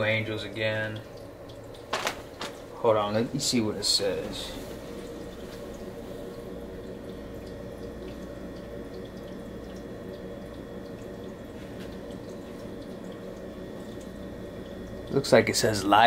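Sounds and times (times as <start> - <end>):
low room hum: 0.0 - 16.0
soft ticks and rustles of shirt: 1.8 - 2.8.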